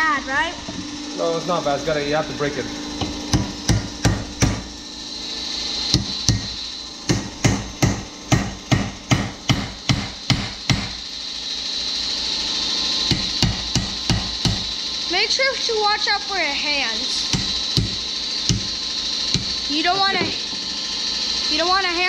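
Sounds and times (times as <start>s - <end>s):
hammer striking metal chisel: 3.0s - 4.7s, 5.9s - 11.0s, 13.1s - 14.7s, 17.3s - 20.6s.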